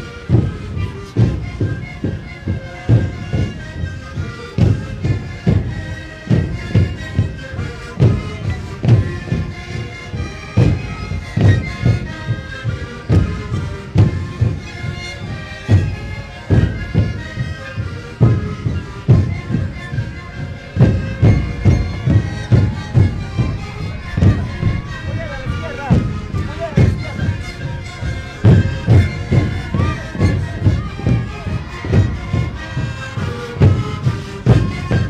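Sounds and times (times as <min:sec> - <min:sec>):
panpipes playing a melody: 0:00.0 - 0:35.0
bass drums beating: 0:20.8 - 0:31.3.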